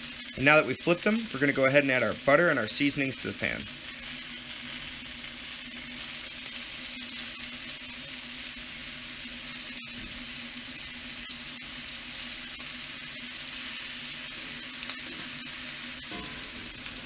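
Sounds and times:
meat sizzling in a hot pan: 0.0 - 17.0.

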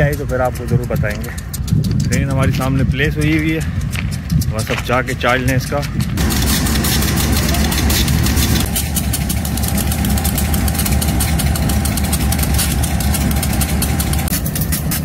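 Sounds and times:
locomotive engine idling: 0.0 - 15.0
steady whine: 6.0 - 15.0.

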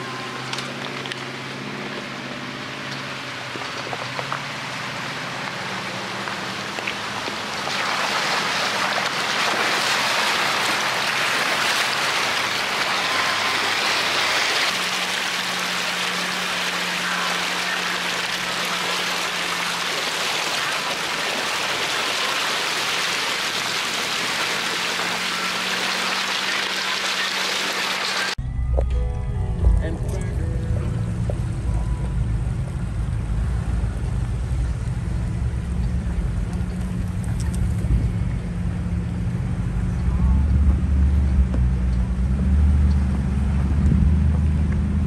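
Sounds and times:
water splashing around tyres: 0.0 - 28.4
low engine hum: 0.0 - 45.0.

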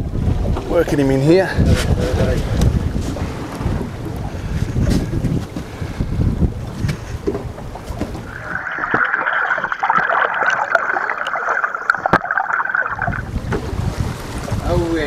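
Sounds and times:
sea water washing at boat: 0.0 - 15.0
wind on microphone: 0.0 - 15.0
muffled underwater fizzing hiss: 7.9 - 13.3
underwater clicks and pops: 8.0 - 13.6.

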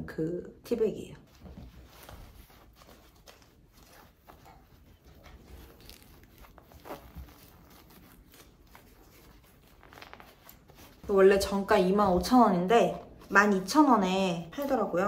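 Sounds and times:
fabric rustling: 1.2 - 15.0
fabric tearing: 1.9 - 11.8.

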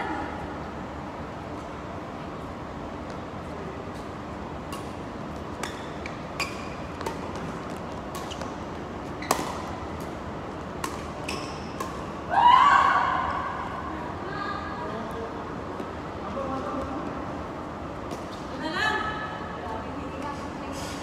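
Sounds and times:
steady background hiss: 0.0 - 21.0
racket hitting shuttlecock: 4.7 - 12.1.

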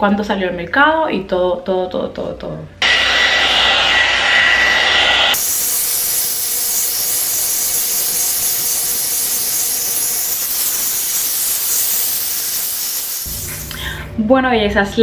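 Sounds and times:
hot air brush blowing: 2.8 - 13.8.

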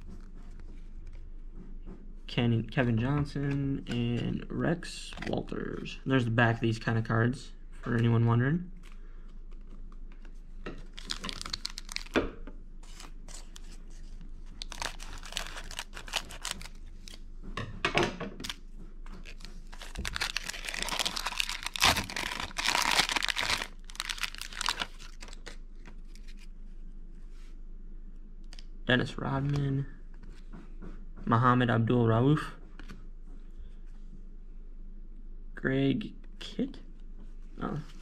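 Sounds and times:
wrapper crinkling and tearing: 10.9 - 12.2, 12.8 - 17.2, 19.2 - 26.5.

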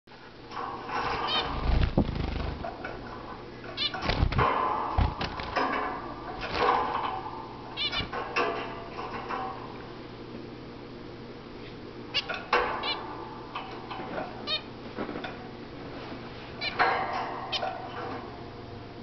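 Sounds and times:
low thumps: 1.5 - 2.7.

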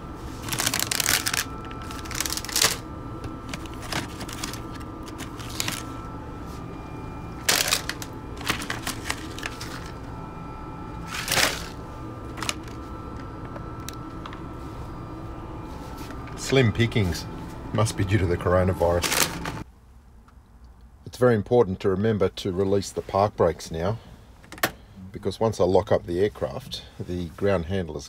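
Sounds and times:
steady hum: 0.0 - 28.0
plastic snack packets crinkling: 0.4 - 2.8, 3.4 - 5.9, 7.4 - 9.9, 11.1 - 12.8, 19.0 - 19.4.

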